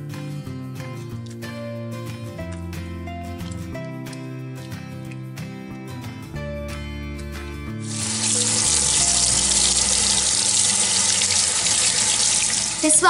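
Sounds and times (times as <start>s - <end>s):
hands rinsing under water: 2.4s - 5.4s, 7.8s - 13.0s
faucet running into sink: 7.8s - 13.0s.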